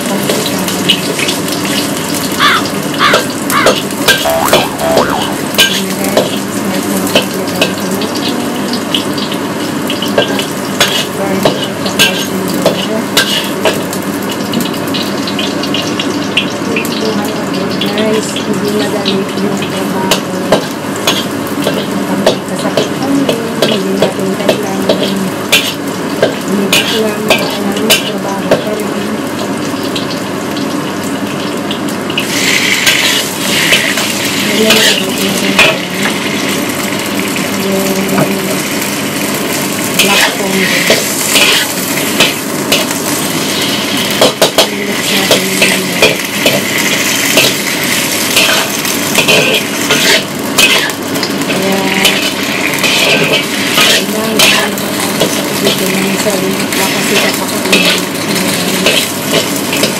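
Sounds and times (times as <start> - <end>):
loud sizzle: 0.0 - 59.9
metal spatula scraping a wok: 13.2 - 13.5, 40.0 - 42.9, 48.4 - 51.0, 52.0 - 55.8, 56.9 - 58.0.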